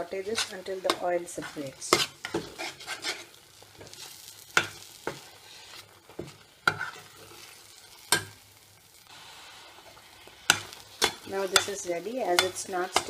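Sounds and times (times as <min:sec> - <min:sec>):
faint sizzle in oil: 0:00.0 - 0:13.0
metal spoon stirring thick paste: 0:00.2 - 0:07.6, 0:10.3 - 0:13.0.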